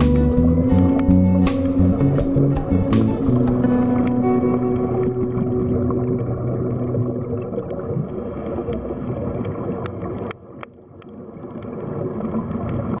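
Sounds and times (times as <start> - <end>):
sharp underwater clicks: 0.0 - 5.4
underwater churning rumble: 0.0 - 13.0.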